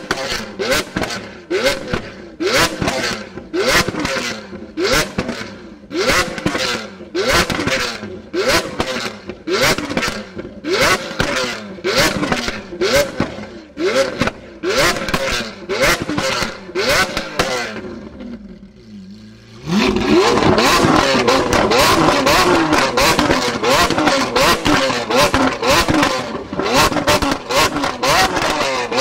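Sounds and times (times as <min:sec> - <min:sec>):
car engine revving: 0:00.0 - 0:29.0
exhaust cracks and pops: 0:19.7 - 0:29.0.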